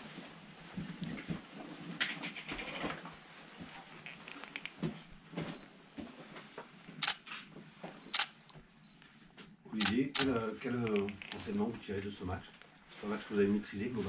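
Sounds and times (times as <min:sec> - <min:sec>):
faint rustling: 0:00.0 - 0:14.0
camera shutter clicks: 0:07.0 - 0:07.2, 0:08.1 - 0:08.4, 0:09.8 - 0:11.3.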